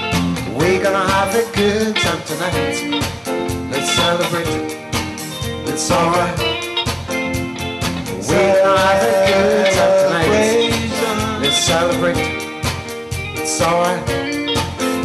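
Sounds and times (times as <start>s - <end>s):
drum kit with cymbals: 0.0s - 15.0s
guitar and keyboard: 0.0s - 15.0s
person singing: 0.5s - 3.0s, 3.7s - 4.8s, 5.6s - 6.7s, 8.1s - 12.6s, 13.3s - 15.0s.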